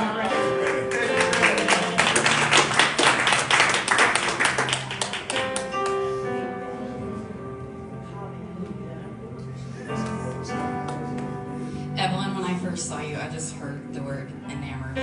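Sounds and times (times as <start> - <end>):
soft worship music with keyboard: 0.0 - 15.0
hands clapping rapidly: 0.3 - 6.0.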